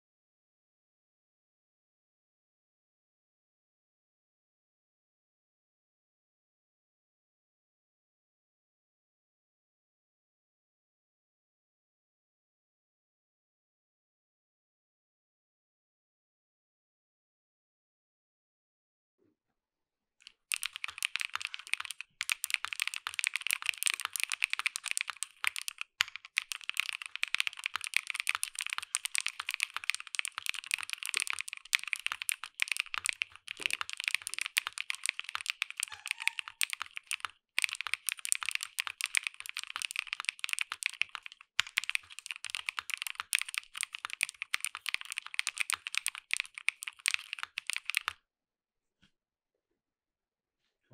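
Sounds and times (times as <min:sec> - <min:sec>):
mechanical keyboard typing: 0:20.2 - 0:48.2.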